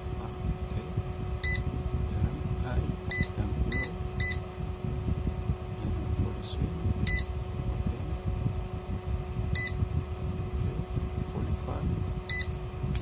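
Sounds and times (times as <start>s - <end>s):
steady electrical hum: 0.0s - 13.0s
short high beeps: 1.4s - 1.7s, 3.1s - 4.4s, 7.1s - 7.3s, 9.6s - 9.8s, 12.3s - 12.5s.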